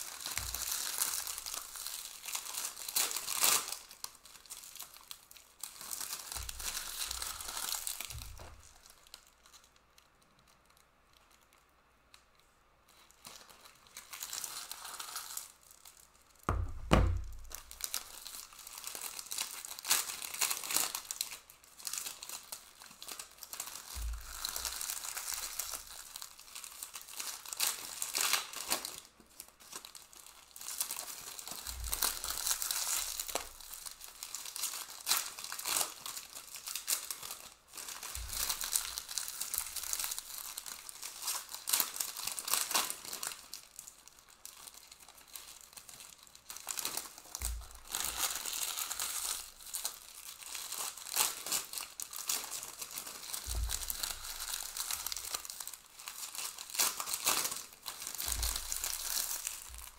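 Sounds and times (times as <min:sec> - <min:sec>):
wrappers crinkling and tearing: 0:00.0 - 0:59.9
dull thumps on a table: 0:16.5 - 0:17.6.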